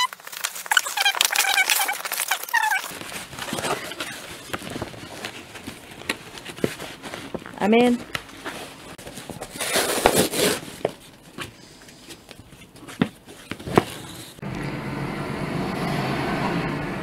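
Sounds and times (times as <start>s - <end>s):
paper mailer tearing: 0.0s - 5.7s, 9.5s - 10.8s.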